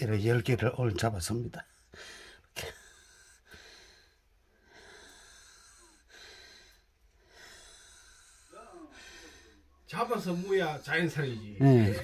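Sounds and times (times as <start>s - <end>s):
person breathing close: 1.6s - 11.1s.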